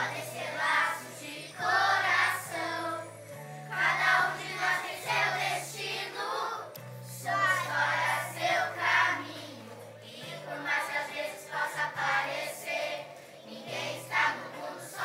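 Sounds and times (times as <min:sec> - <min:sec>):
children singing together: 0:00.0 - 0:15.0
low backing accompaniment: 0:00.0 - 0:15.0.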